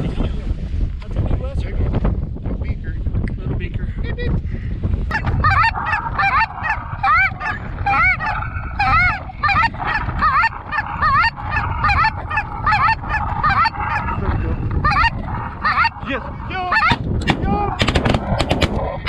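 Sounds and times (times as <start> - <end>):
wind on microphone: 0.0 - 19.0
goose honking: 5.1 - 17.0.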